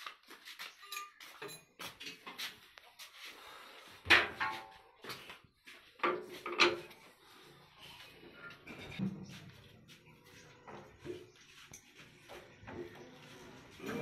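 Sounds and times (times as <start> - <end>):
metal clanks and knocks: 6.0 - 7.0.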